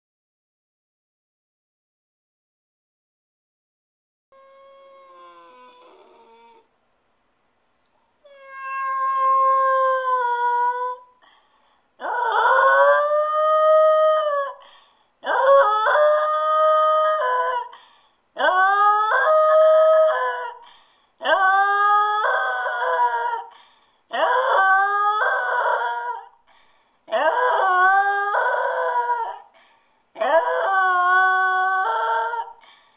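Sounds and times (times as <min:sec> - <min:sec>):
dog howling: 0:04.4 - 0:06.7, 0:08.2 - 0:11.1, 0:12.0 - 0:14.6, 0:15.2 - 0:17.7, 0:18.4 - 0:20.6, 0:21.2 - 0:23.5, 0:24.1 - 0:26.4, 0:27.1 - 0:29.5, 0:30.2 - 0:32.6.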